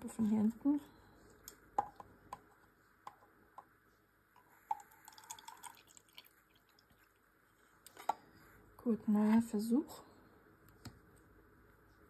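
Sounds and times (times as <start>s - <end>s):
water trickling pour: 4.7s - 7.3s.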